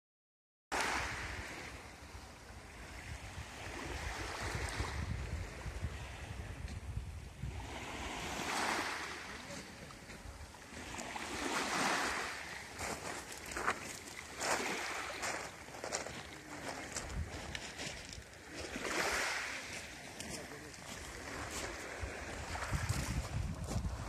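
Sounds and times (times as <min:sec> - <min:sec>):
waves washing onto pebbles: 0:00.8 - 0:05.1, 0:07.5 - 0:24.0
wind rumbling on microphone: 0:00.9 - 0:08.8, 0:14.4 - 0:18.8, 0:20.9 - 0:24.0.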